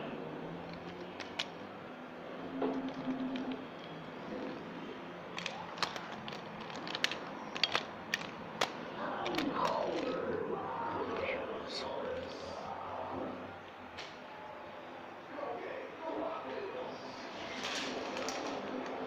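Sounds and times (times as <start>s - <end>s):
plastic toy wheels rolling on tile: 0.5s - 1.7s, 2.6s - 11.2s, 17.3s - 19.0s
sharp plastic clicks: 0.6s - 1.7s, 2.6s - 4.0s, 5.3s - 10.4s.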